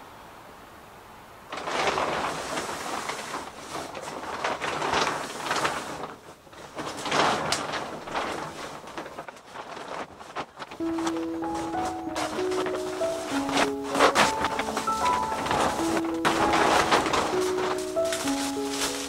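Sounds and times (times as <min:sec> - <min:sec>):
packaging rustling and crinkling: 0:01.5 - 0:19.0.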